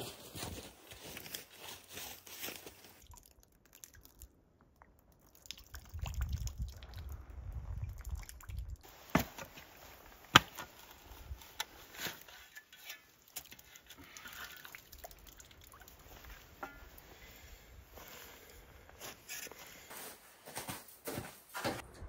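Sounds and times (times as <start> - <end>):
shovel scraping wet ground: 8.9 - 14.8, 16.2 - 19.9.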